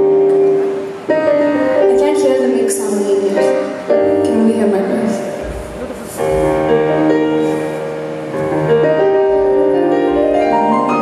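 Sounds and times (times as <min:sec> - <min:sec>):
keyboard playing slow chords: 0:05.4 - 0:11.0.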